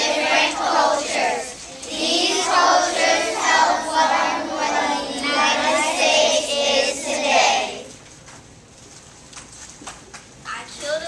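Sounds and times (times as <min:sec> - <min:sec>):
children's choir singing: 0:00.0 - 0:08.0.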